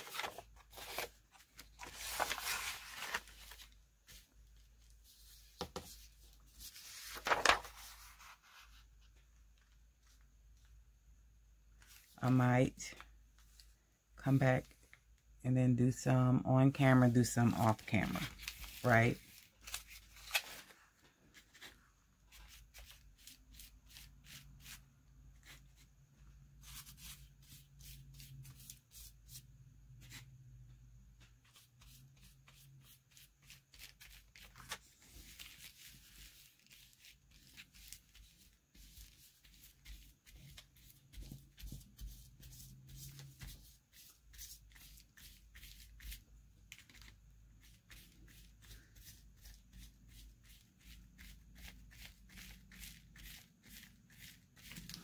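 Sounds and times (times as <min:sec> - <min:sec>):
paintbrush brushing on paper: 0:26.6 - 0:30.2, 0:35.1 - 0:46.2.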